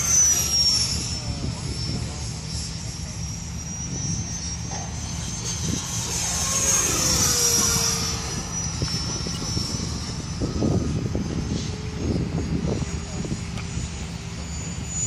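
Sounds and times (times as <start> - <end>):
electric ducted fan whining: 0.0 - 15.0
steady low rumble: 0.0 - 15.0.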